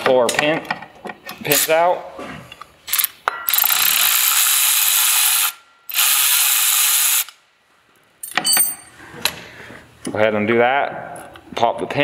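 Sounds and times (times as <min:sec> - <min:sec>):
cordless ratchet running: 0:03.0 - 0:07.4.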